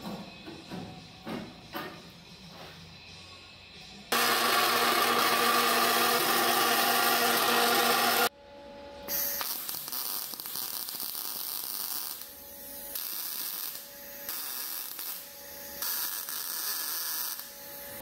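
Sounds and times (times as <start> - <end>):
band saw cutting sheet steel: 4.1 - 8.3
welder crackling and hissing: 9.1 - 18.0.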